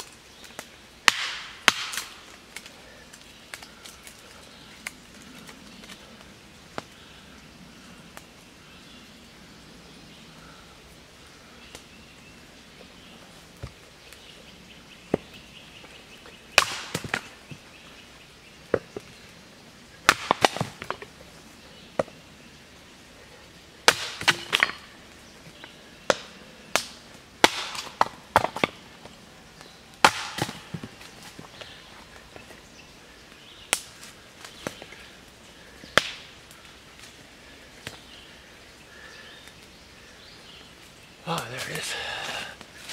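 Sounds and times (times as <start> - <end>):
baton striking wood: 1.1 - 2.1, 20.1 - 21.0, 23.9 - 24.9, 27.4 - 28.8, 30.0 - 31.0.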